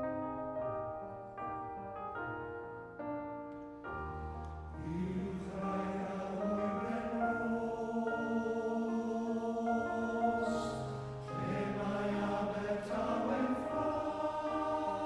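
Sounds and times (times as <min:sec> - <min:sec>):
piano playing slow chords: 0:00.0 - 0:15.0
male voice choir singing: 0:04.8 - 0:15.0.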